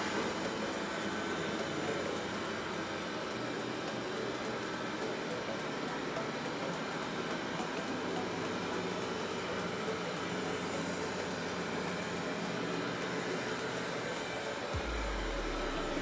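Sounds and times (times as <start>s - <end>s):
robot vacuum running: 0.0s - 16.0s.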